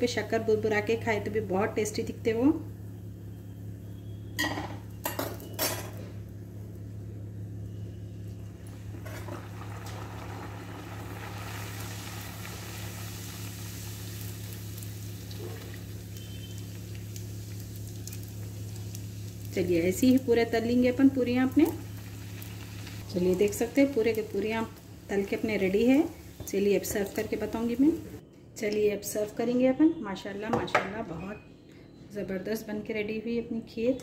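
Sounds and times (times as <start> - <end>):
deep-frying in hot oil sizzling: 8.1 - 28.2.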